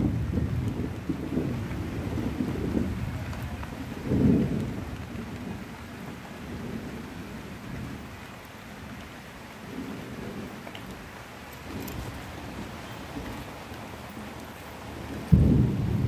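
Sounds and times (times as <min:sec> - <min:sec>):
steady rain: 0:00.0 - 0:16.0
thunder rumbling: 0:00.0 - 0:16.0.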